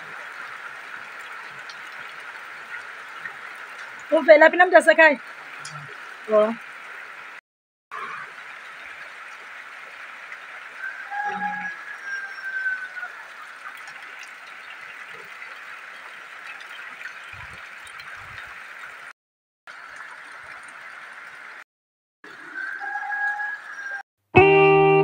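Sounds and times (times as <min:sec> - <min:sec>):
steady rain falling: 0:00.0 - 0:07.4, 0:08.0 - 0:19.1.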